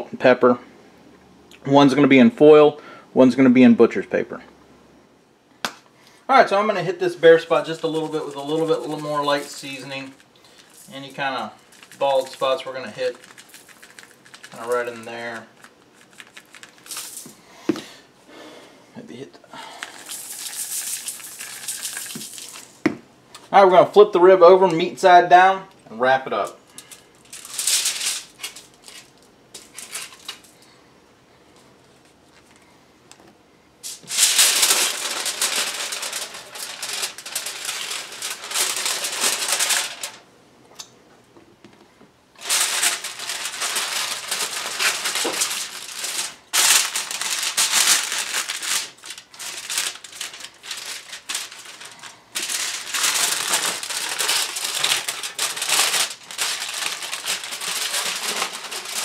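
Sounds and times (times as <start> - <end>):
aluminium foil crinkling: 6.9 - 17.5, 19.6 - 22.9, 26.4 - 30.8, 33.8 - 40.2, 42.4 - 59.0.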